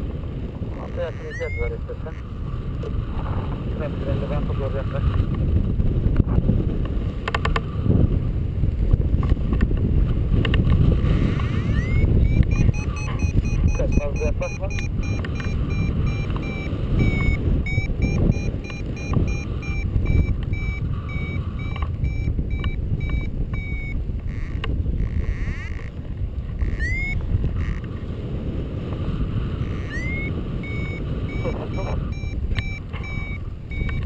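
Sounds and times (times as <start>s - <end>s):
wind rushing over microphone: 0.0s - 34.0s
variometer beeping: 1.1s - 1.9s, 11.4s - 25.9s, 26.6s - 27.8s, 29.6s - 34.0s.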